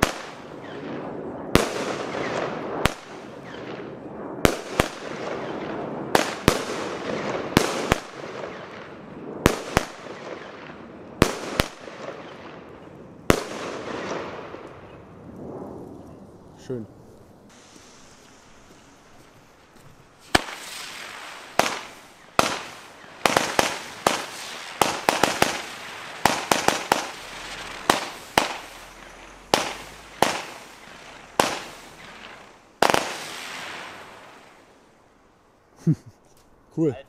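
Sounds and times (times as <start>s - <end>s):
firework launch bangs: 0.0s - 15.0s, 20.2s - 34.8s
firework hiss: 17.5s - 35.2s.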